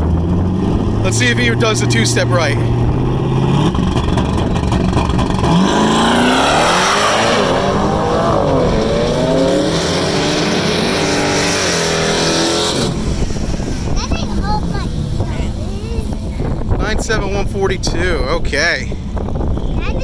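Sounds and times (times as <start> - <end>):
car accelerating through gears: 0.0 - 13.9
car engine revving on launch limiter: 0.0 - 14.0.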